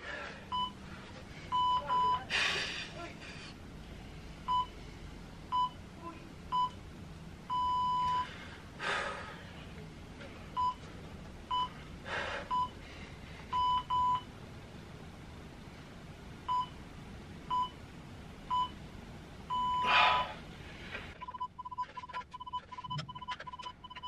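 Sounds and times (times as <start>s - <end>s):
hard breathing: 0.0s - 4.2s, 8.1s - 9.8s, 11.8s - 13.6s
timer long beep: 21.2s - 24.0s.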